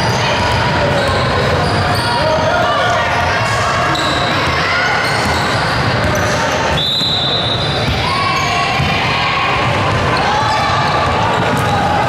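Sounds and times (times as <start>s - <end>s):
echoing voices: 0.0s - 6.8s, 7.4s - 12.0s
basketball bouncing on court: 5.1s - 11.8s.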